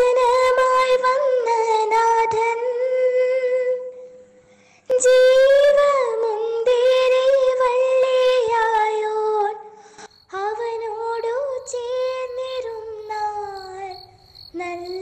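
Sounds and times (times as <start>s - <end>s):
high voice singing a hymn: 10.3s - 15.0s.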